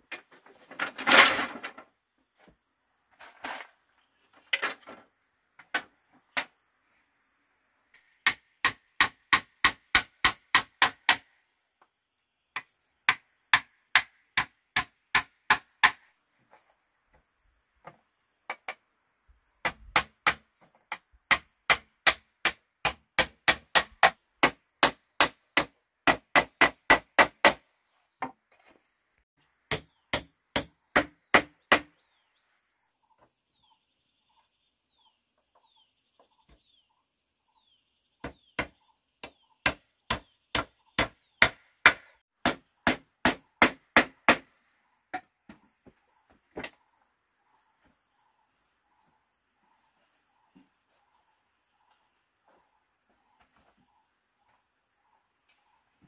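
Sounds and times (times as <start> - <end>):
hammer striking wood: 8.2 - 11.3, 12.6 - 16.0, 19.6 - 27.6, 29.7 - 32.0, 38.2 - 44.5
faint chirping: 31.6 - 41.4, 44.5 - 56.0.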